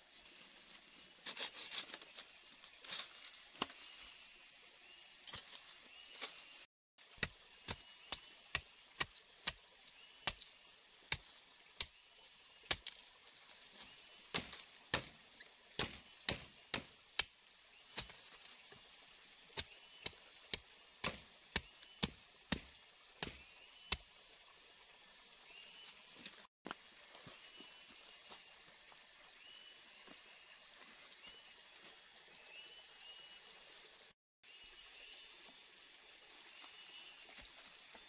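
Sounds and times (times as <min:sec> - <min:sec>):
machete chopping wooden pole: 0:14.3 - 0:15.2, 0:15.8 - 0:17.3, 0:19.6 - 0:24.0.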